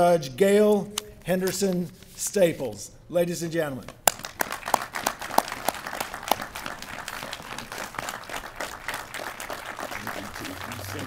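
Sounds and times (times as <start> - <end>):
audience applauding: 4.1 - 11.0.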